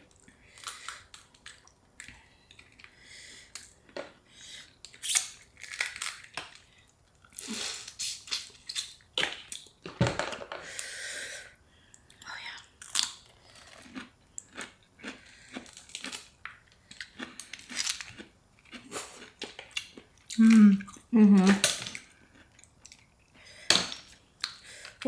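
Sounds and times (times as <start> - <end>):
chewing and wet smacking: 0.1 - 3.8, 12.9 - 23.4
shellfish shells crackling: 5.0 - 6.7.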